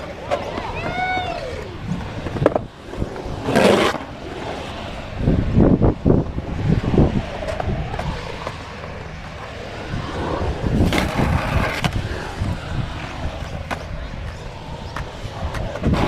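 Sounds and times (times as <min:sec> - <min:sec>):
skateboard clacks: 0:00.0 - 0:04.6, 0:10.8 - 0:16.0
skateboard wheels rolling on concrete: 0:00.0 - 0:16.0.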